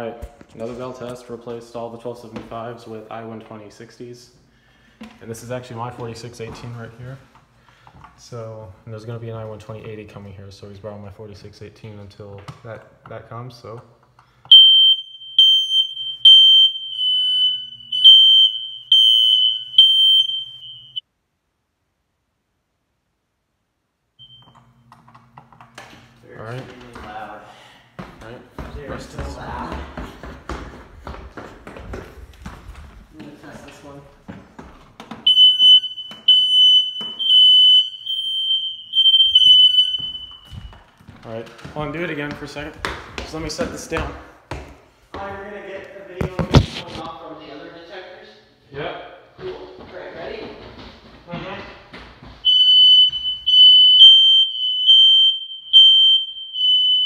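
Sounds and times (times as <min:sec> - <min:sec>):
smoke alarm beeping: 0:14.4 - 0:21.0, 0:24.2 - 0:25.4, 0:35.3 - 0:41.0, 0:52.4 - 0:57.0.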